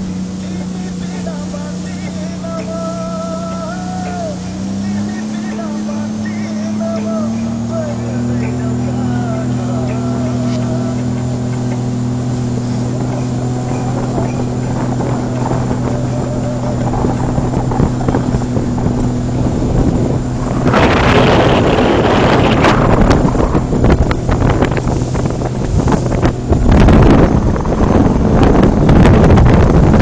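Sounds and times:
speedboat engine running: 0:00.0 - 0:30.0
water rushing past hull: 0:00.0 - 0:30.0
wind on microphone: 0:07.4 - 0:30.0.

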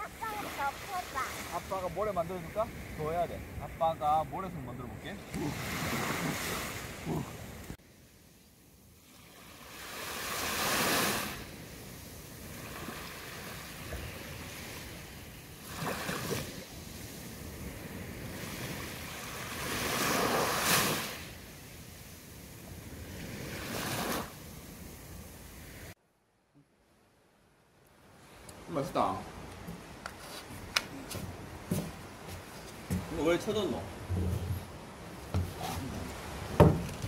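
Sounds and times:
waves washing onto sand: 0:00.0 - 0:08.3, 0:09.0 - 0:26.0, 0:28.2 - 0:37.0.

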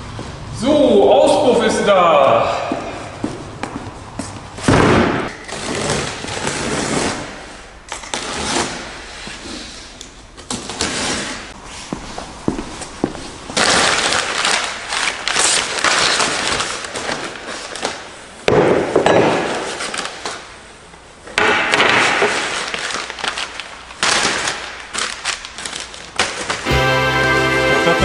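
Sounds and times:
packaging rustling and crinkling: 0:13.6 - 0:18.2, 0:22.2 - 0:26.7.

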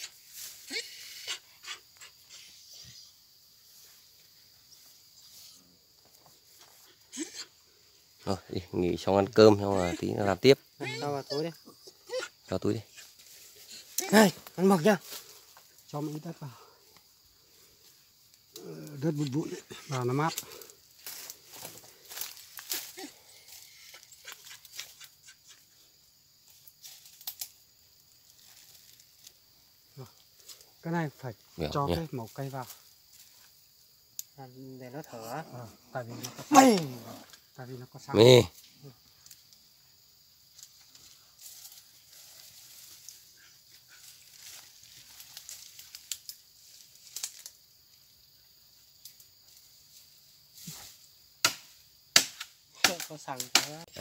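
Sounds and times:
rustling of dry soil and leaves: 0:00.0 - 0:54.0
dry leaves rustling: 0:13.0 - 0:16.2, 0:20.5 - 0:24.5, 0:26.8 - 0:29.6, 0:41.0 - 0:47.6
sharp crackles: 0:26.6 - 0:27.6, 0:44.3 - 0:47.6.

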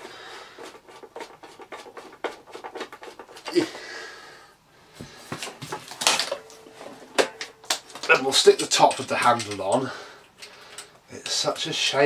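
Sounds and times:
metal parts clicking and knocking: 0:05.9 - 0:11.7.

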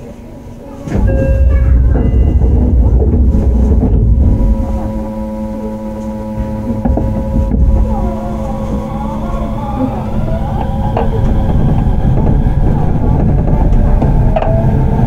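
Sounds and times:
electric train rumbling: 0:00.0 - 0:15.0
steady humming tones: 0:00.0 - 0:15.0.

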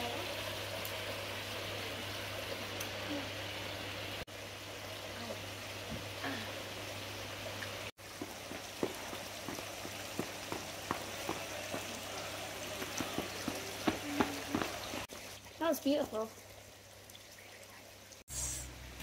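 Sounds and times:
splashing trickling water: 0:00.0 - 0:18.9.

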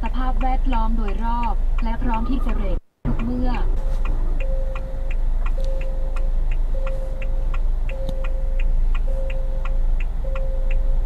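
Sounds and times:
parking-assist warning beeps: 0:01.8 - 0:11.0.

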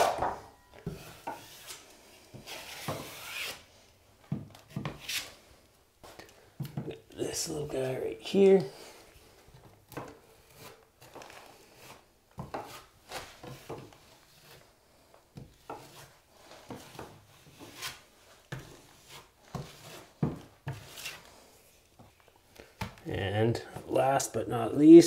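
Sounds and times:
drywall knife scraping compound: 0:00.0 - 0:03.7, 0:04.6 - 0:05.4, 0:07.6 - 0:21.8.

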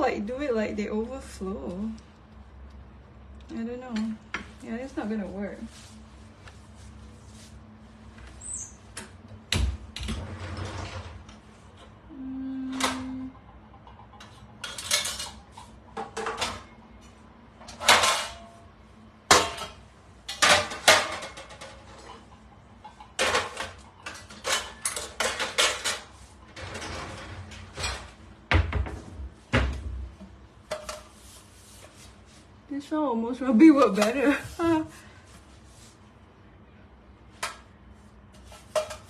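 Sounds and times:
metal baking pans clattering: 0:14.2 - 0:16.7, 0:17.7 - 0:18.6, 0:19.3 - 0:28.8.

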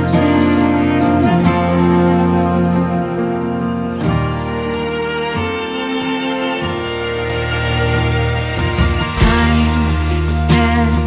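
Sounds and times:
background music with light beat: 0:04.6 - 0:11.0.

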